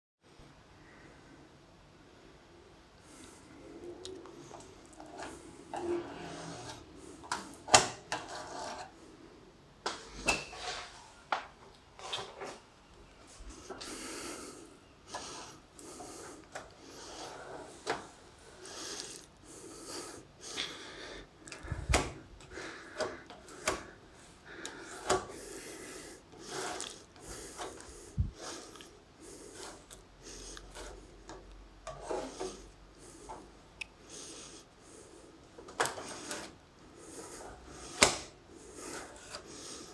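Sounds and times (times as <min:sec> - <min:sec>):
putty knife scraping filler: 0:05.0 - 0:08.9, 0:24.6 - 0:28.8, 0:29.4 - 0:32.7, 0:35.8 - 0:36.6, 0:37.2 - 0:39.9.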